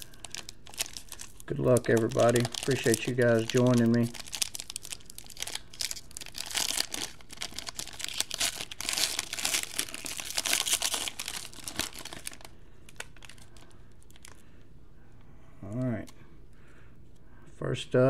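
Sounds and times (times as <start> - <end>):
foil wrapper tearing and crinkling: 0.0 - 14.4.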